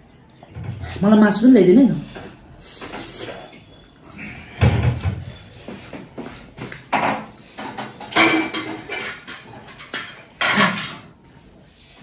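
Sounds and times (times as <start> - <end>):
dishes and cutlery clinking: 4.6 - 11.3.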